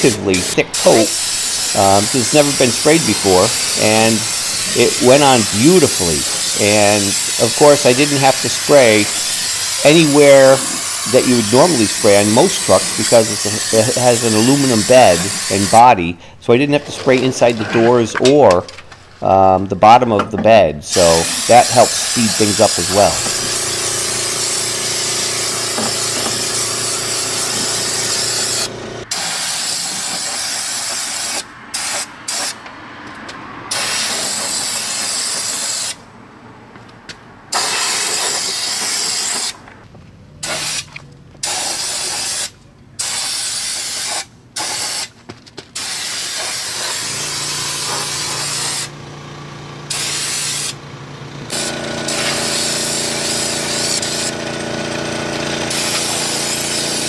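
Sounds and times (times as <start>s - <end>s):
spray gun hissing: 0.0s - 16.2s, 20.9s - 32.6s, 33.7s - 36.0s, 37.5s - 39.6s, 40.4s - 45.1s, 45.8s - 48.9s, 49.9s - 50.8s, 51.5s - 54.4s, 55.7s - 57.0s.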